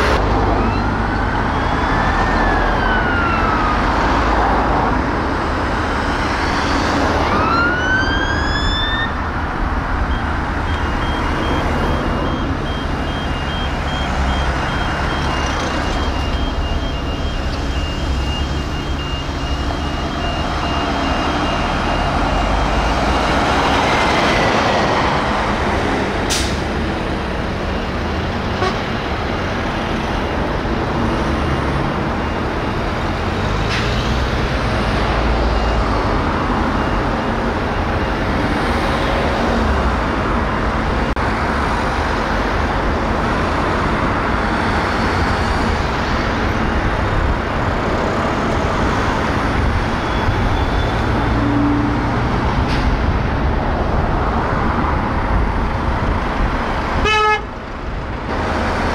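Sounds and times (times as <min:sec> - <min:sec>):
diesel engine: 0:00.0 - 0:58.9
road traffic noise: 0:00.0 - 0:58.9
siren wailing: 0:00.4 - 0:04.9, 0:06.6 - 0:09.2.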